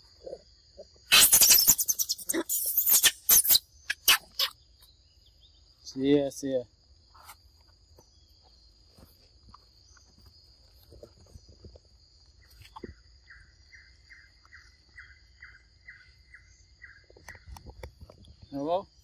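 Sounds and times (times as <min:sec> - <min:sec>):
high insect drone: 0:00.0 - 0:19.0.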